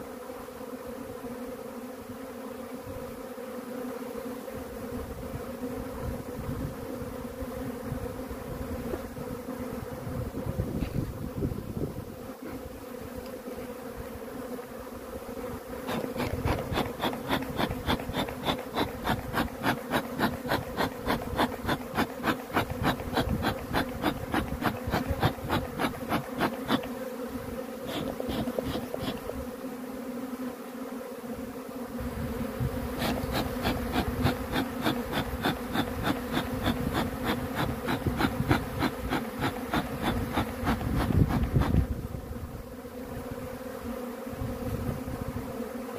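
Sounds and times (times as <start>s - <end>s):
bees buzzing: 0.0s - 45.9s
fast even ticking: 15.9s - 26.9s, 33.0s - 41.8s.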